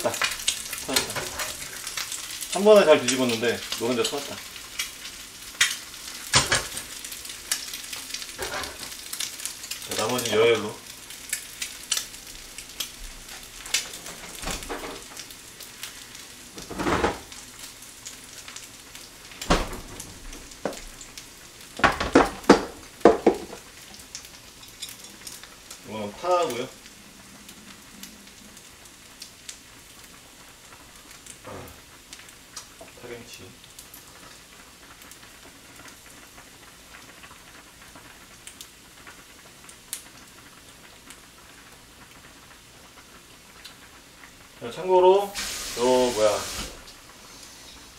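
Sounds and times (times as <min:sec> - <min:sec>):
egg sizzling in a pan: 0:00.0 - 0:47.9
faint steady hiss: 0:00.0 - 0:47.9
knocks: 0:21.8 - 0:23.6.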